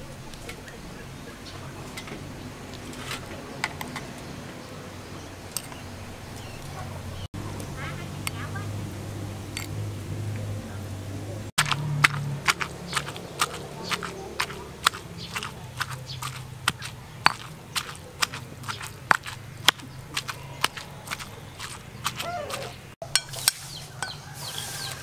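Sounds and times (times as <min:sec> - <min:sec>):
pestle pounding in stone mortar: 0:11.6 - 0:23.4.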